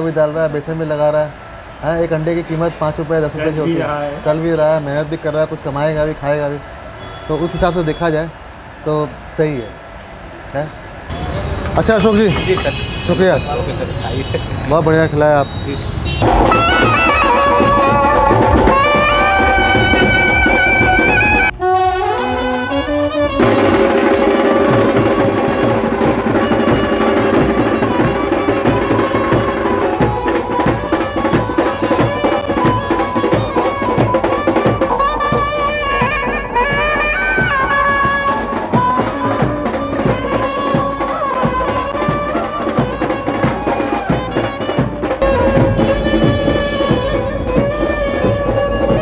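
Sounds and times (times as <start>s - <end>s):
saxophone and trumpet melody: 16.0s - 49.0s
snare and bass drums: 16.2s - 21.5s, 23.3s - 49.0s.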